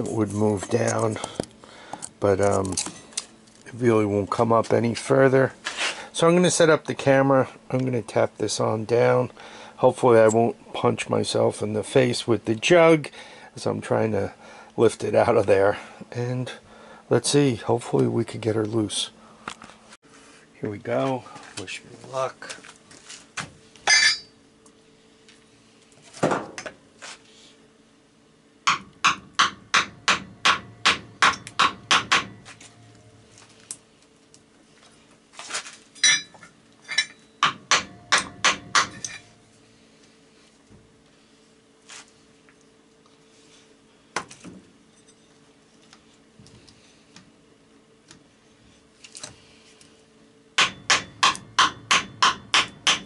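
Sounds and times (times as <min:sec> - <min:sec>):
hammer tapping on metal cylinder: 0:28.7 - 0:32.4, 0:37.4 - 0:39.2, 0:50.6 - 0:53.0.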